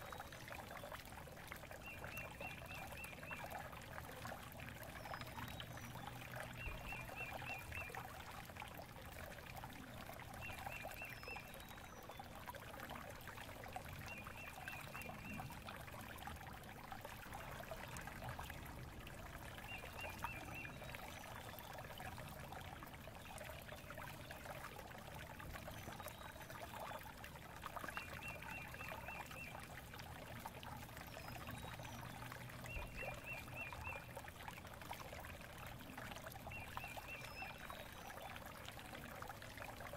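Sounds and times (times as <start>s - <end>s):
trickling water: 0.0s - 39.9s.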